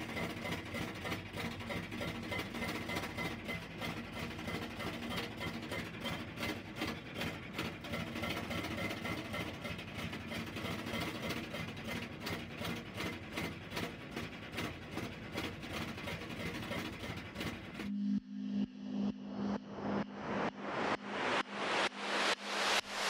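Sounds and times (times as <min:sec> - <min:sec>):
snowblower engine running: 0:00.0 - 0:17.9.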